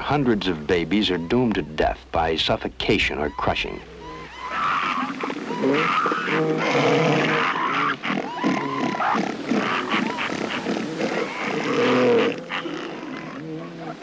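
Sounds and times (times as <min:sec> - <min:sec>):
elephant seals calling: 0:00.0 - 0:14.0.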